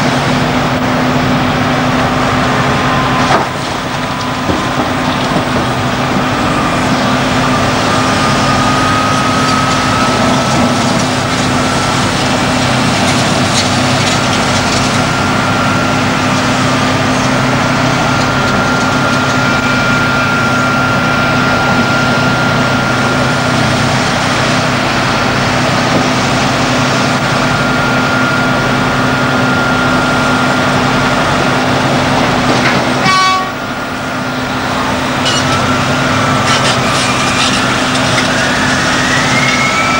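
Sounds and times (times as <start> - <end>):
excavator diesel engine running: 0.0 - 39.9
thin high whine: 35.2 - 39.9.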